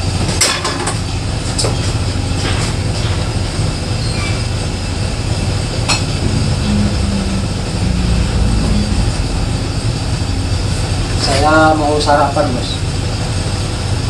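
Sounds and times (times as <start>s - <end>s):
gas stove burner rumbling: 0.0s - 14.0s.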